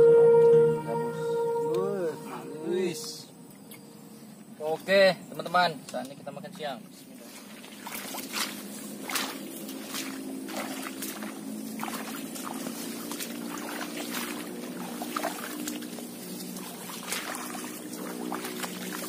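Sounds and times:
steady low drone: 0.0 - 4.5, 8.5 - 19.0
boots wading through muddy water: 7.1 - 19.0.

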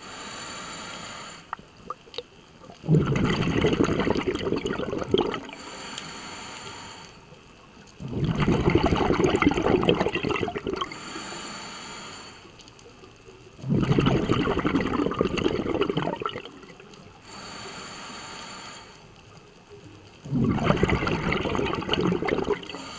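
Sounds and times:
regulator hissing inhale: 0.0 - 1.6, 5.5 - 7.4, 10.9 - 12.6, 17.2 - 19.2, 22.6 - 22.9
bubbling exhale underwater: 1.8 - 5.6, 8.0 - 11.0, 13.6 - 16.9, 20.2 - 22.9.

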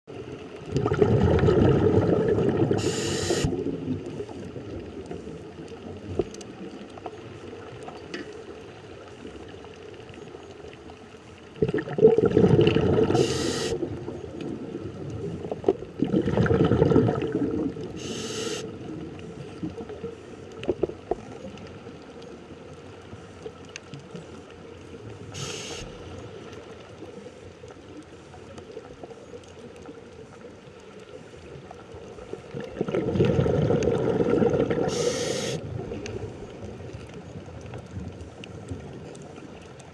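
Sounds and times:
exhaled bubbles rumbling: 0.1 - 8.1, 11.4 - 22.2, 31.5 - 39.9
steady underwater hiss: 0.1 - 39.9
regulator inhalation hiss: 2.8 - 3.6, 13.2 - 13.8, 18.0 - 18.7, 25.3 - 26.1, 34.9 - 35.6.

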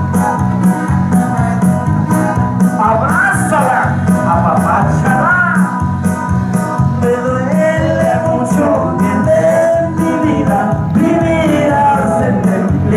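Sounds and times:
loud dance music: 0.0 - 12.9
person singing: 6.9 - 12.9.

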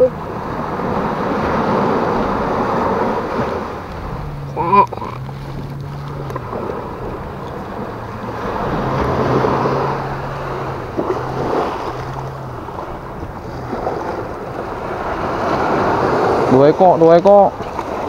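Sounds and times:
sea waves washing on beach: 0.0 - 18.0
wind buffeting microphone: 0.1 - 18.0.

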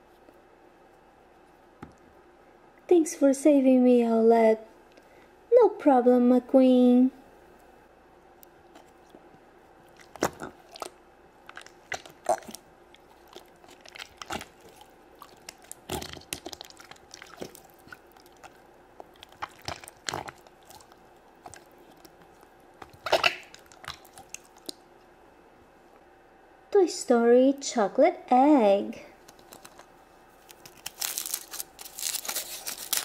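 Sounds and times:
slime squelching: 8.4 - 24.8, 29.2 - 33.0.

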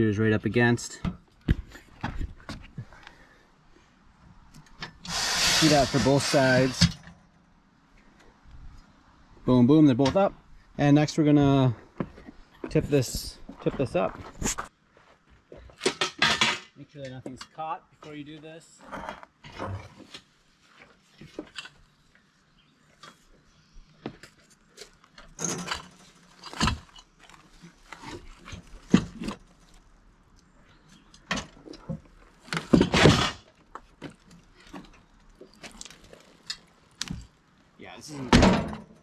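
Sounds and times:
steel frame clanking and scraping: 15.8 - 16.8, 25.2 - 29.6, 31.2 - 36.8
plastic wrap crinkling: 33.8 - 37.8.

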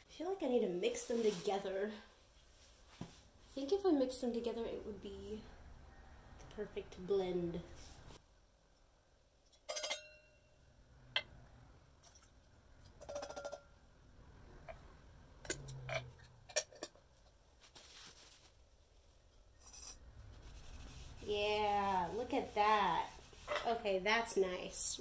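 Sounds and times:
metal cans clinking: 13.0 - 13.7.

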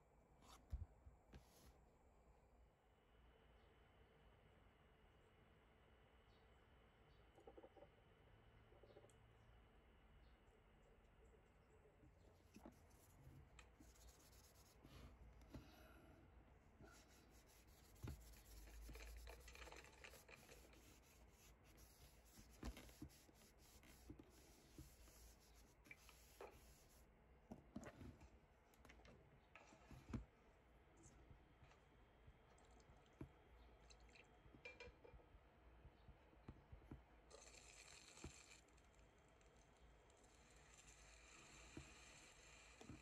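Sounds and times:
light scratching: 12.5 - 15.7, 16.8 - 27.0.

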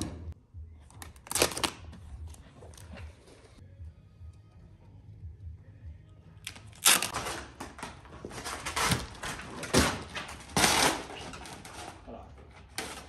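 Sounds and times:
vinyl film rustling and crinkling: 6.8 - 13.0.

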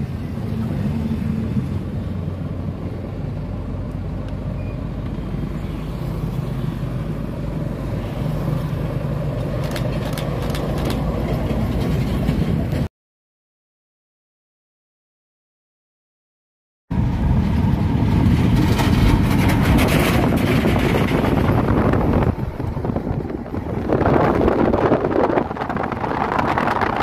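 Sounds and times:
truck approaching: 0.0 - 12.9, 16.9 - 27.0
sharp clicks or rattles: 9.4 - 12.0.

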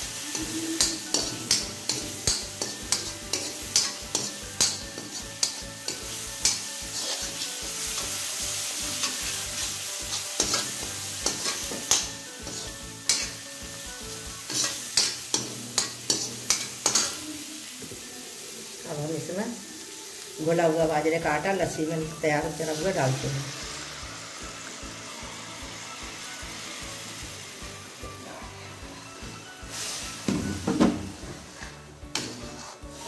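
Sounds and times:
spices sizzling in oil: 0.0 - 33.0
ladle scraping and clinking pan: 0.8 - 8.1, 9.0 - 13.4, 14.5 - 17.2, 30.5 - 33.0.

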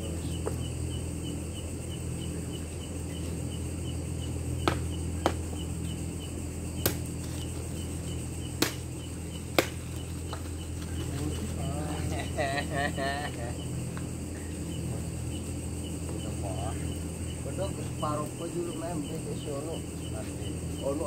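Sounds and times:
cricket chirping: 0.0 - 21.0
low steady hum: 0.0 - 21.0
sharp cracks: 6.8 - 7.3, 8.5 - 10.5.

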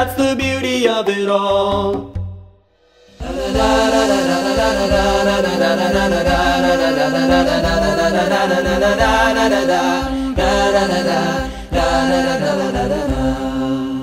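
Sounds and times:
low vocal drone: 3.0 - 14.0
steady low beat: 3.0 - 14.0
voices chanting a melody: 3.2 - 14.0.

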